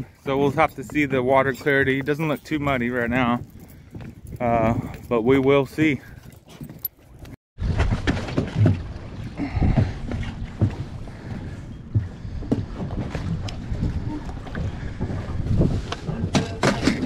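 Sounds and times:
wind buffeting microphone: 0.0s - 6.2s, 7.6s - 17.0s
water slapping against boat hull: 7.6s - 17.0s.

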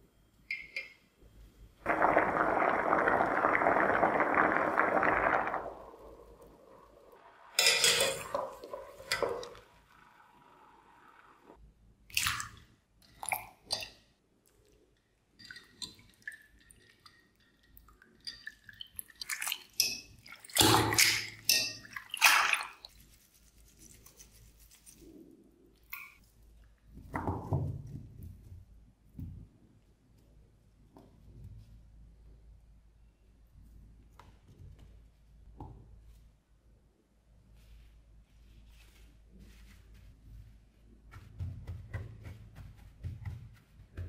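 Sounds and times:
water splashing and squishing: 1.8s - 9.9s, 12.1s - 13.9s, 15.4s - 23.4s
water running off strainer: 19.2s - 22.9s.

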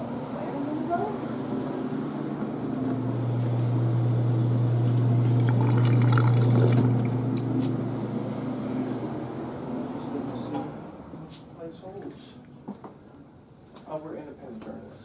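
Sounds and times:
fountain unit humming: 3.0s - 9.3s
water splashing into metal basin: 5.4s - 7.2s.

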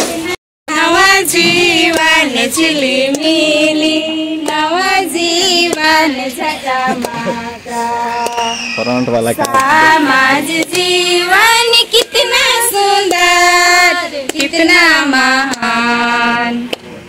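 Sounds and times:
women singing together: 0.0s - 17.0s
hands clapping: 1.9s - 2.2s, 3.0s - 3.4s, 4.4s - 4.7s, 5.6s - 5.9s, 7.0s - 7.2s, 8.2s - 8.5s, 9.3s - 9.9s, 10.5s - 10.9s, 13.0s - 13.3s, 14.3s - 14.6s.

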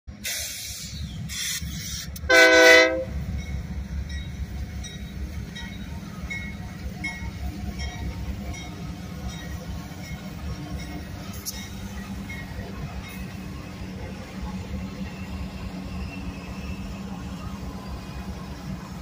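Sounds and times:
diesel locomotives rumbling: 0.1s - 19.0s
locomotive horn blast: 2.2s - 3.2s.

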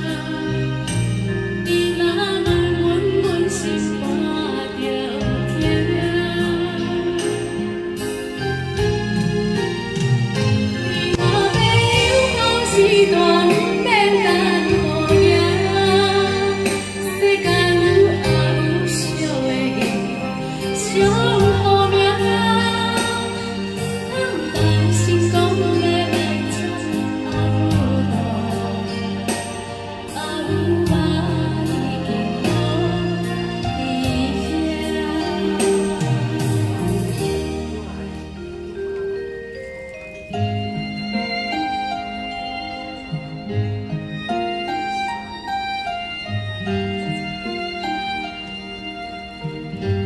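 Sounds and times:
woman singing into a microphone: 0.0s - 8.6s, 10.8s - 38.4s
karaoke backing track: 0.0s - 50.0s.

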